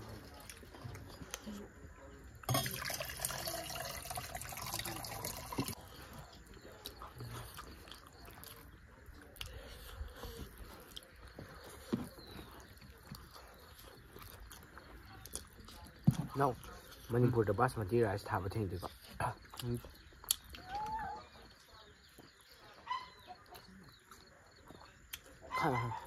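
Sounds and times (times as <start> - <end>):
chewing and lip-smacking: 0.0 - 2.5, 5.5 - 17.3, 18.8 - 25.8
fingers squishing food: 19.4 - 21.4.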